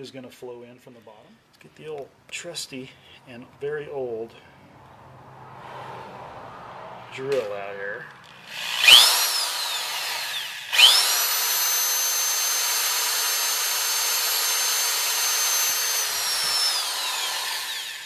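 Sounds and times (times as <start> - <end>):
electric drill whining: 8.2 - 18.0.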